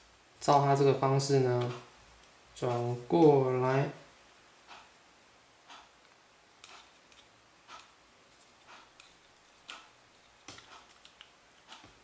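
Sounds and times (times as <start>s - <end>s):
faint regular ticking: 4.6s - 12.0s.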